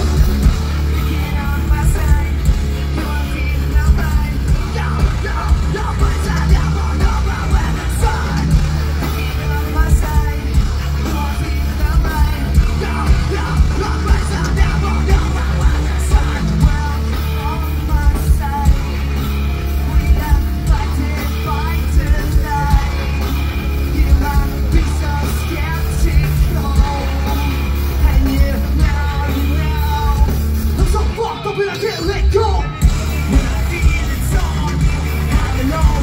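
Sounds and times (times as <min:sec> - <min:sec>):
person singing into a microphone: 0:00.0 - 0:36.0
rock band playing live: 0:00.0 - 0:36.0.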